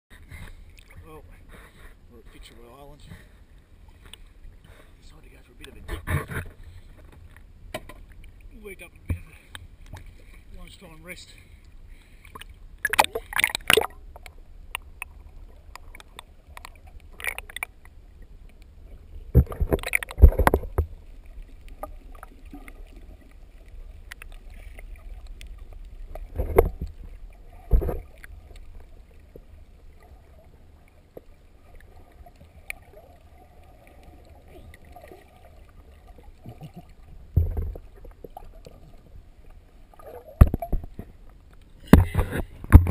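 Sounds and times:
muffled underwater rumble: 0:00.1 - 0:42.9
splashing and knocking: 0:12.8 - 0:14.3, 0:19.3 - 0:21.0, 0:26.1 - 0:28.3, 0:36.5 - 0:38.3, 0:40.3 - 0:41.2, 0:41.8 - 0:42.9.

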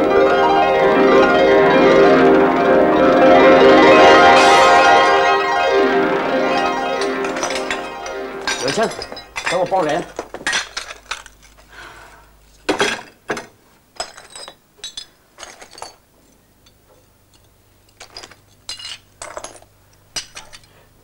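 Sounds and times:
dishes and cutlery clinking: 0:07.0 - 0:11.6, 0:16.6 - 0:20.7.

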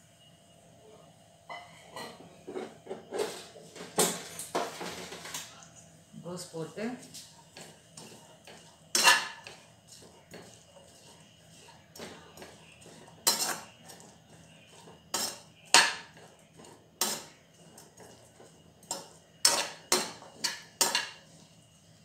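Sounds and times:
steel spatula scraping a pan: 0:07.6 - 0:21.6.

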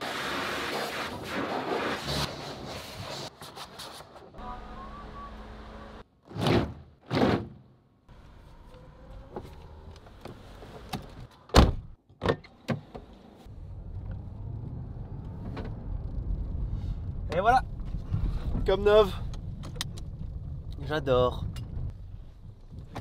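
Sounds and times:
car engine rumbling: 0:13.0 - 0:23.0.

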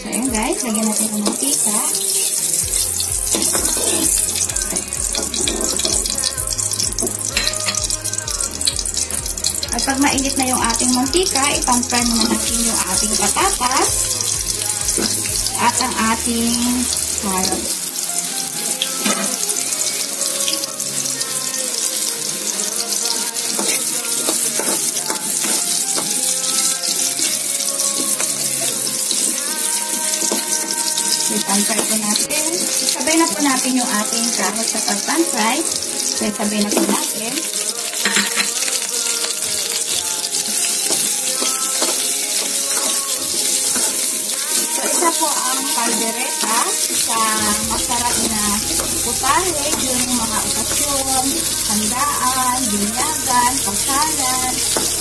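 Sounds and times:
background music with even beat: 0:00.0 - 0:55.0
oil hissing in a hot wok: 0:00.0 - 0:55.0
metal spatula scraping pan: 0:02.8 - 0:06.2
metal ladle clinking on pan: 0:07.3 - 0:07.8, 0:38.0 - 0:38.8.

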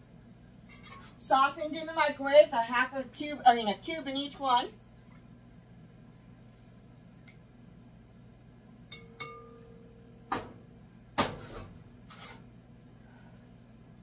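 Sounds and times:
low steady hum: 0:00.0 - 0:14.0
taps on a glass bowl: 0:08.9 - 0:09.6
bowl ringing: 0:08.9 - 0:10.2.

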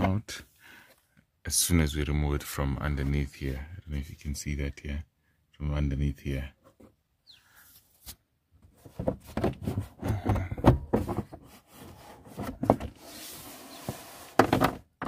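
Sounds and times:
plastic scraping and clattering: 0:08.7 - 0:15.0.

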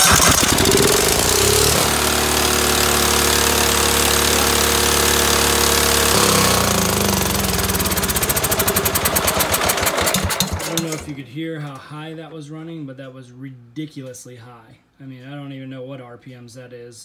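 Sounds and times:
mower engine over-revving: 0:00.0 - 0:11.1.

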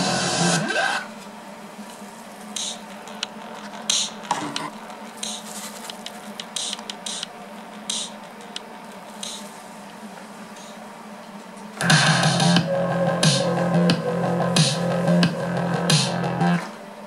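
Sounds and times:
tinny music leaking from headphones: 0:00.0 - 0:16.8
low room hum: 0:00.0 - 0:17.0.

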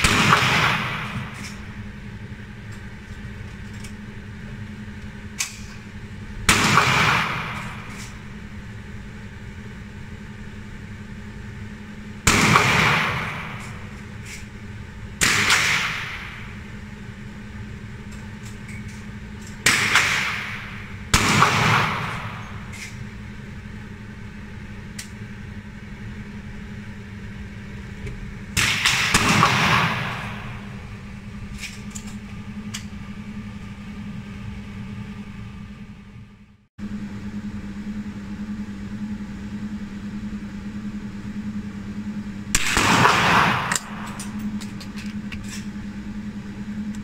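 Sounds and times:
rifle shots echoing: 0:00.0 - 0:01.4, 0:15.2 - 0:16.4, 0:19.6 - 0:22.6, 0:28.6 - 0:30.8, 0:42.6 - 0:44.1
steady low hum: 0:00.0 - 0:47.0.

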